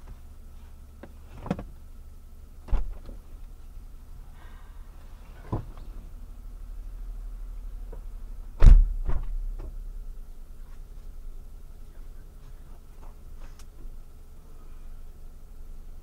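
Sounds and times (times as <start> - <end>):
car engine idling: 0.0 - 16.0
dull thumps and knocks in car: 1.0 - 1.8, 2.6 - 3.2, 8.6 - 9.8.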